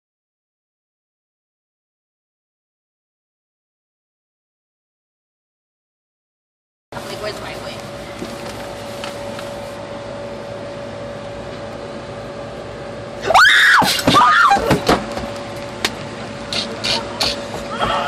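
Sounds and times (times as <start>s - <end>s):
airliner cabin drone: 6.9s - 18.0s.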